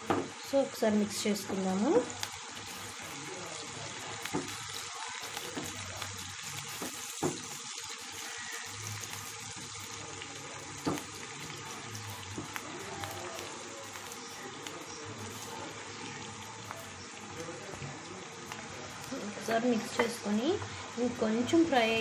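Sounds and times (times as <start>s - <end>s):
onions sizzling in oil: 0.0s - 22.0s
spatula stirring: 2.0s - 19.2s.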